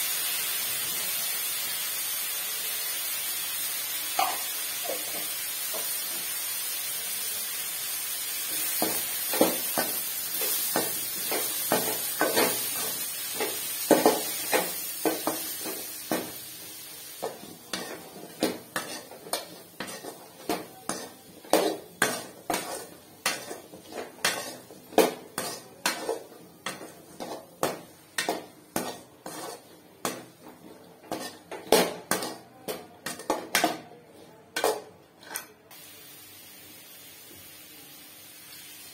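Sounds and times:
food sizzling: 0.0 - 34.9, 35.7 - 38.9
ladle scraping and knocking pan: 17.2 - 33.8.

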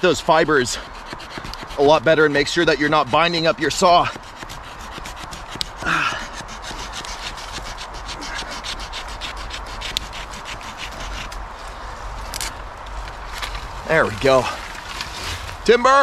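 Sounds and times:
saw cutting through sapling: 0.0 - 11.5.

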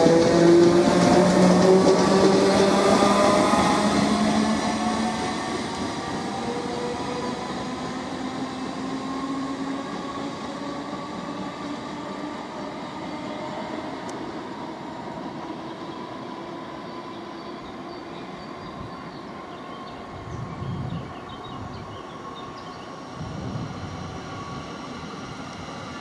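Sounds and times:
train wheels rumbling: 0.0 - 16.5.

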